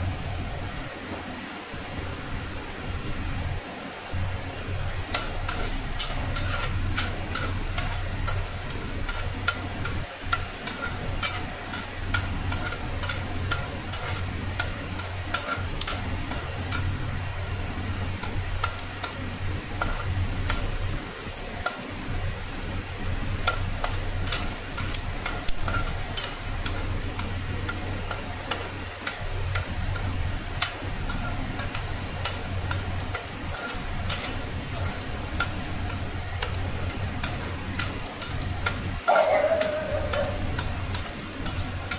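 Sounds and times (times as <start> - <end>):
steady low hum: 0.0 - 41.9
faint oil sizzle: 2.8 - 39.1
skimmer clicking and scraping pan: 4.6 - 41.9.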